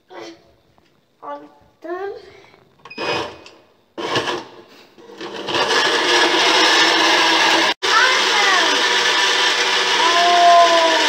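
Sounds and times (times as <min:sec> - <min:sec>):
blender motor running: 0:04.0 - 0:11.0.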